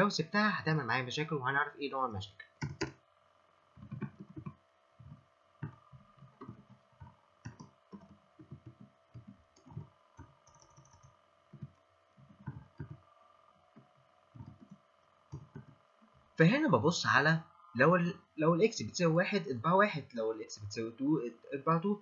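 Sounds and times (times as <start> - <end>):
faint steady hum: 0.0 - 22.0
keyboard typing: 2.6 - 3.0, 3.8 - 13.1, 13.7 - 15.8.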